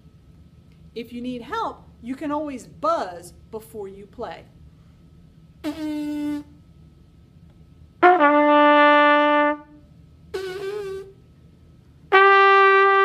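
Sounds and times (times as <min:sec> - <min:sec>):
trumpet held notes: 0:05.6 - 0:06.6, 0:08.0 - 0:11.2, 0:12.1 - 0:13.0.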